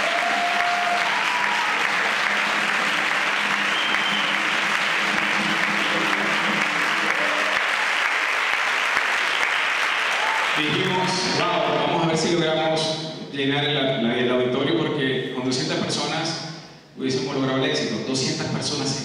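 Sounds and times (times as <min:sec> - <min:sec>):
brief cheers: 0:00.0 - 0:02.4, 0:06.9 - 0:08.0, 0:10.0 - 0:10.9
audience applauding: 0:00.0 - 0:11.8.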